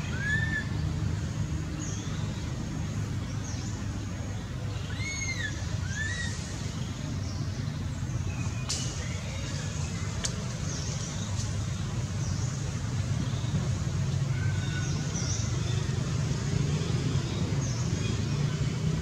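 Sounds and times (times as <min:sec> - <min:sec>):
whistled calls: 0:00.0 - 0:01.0, 0:04.7 - 0:06.9.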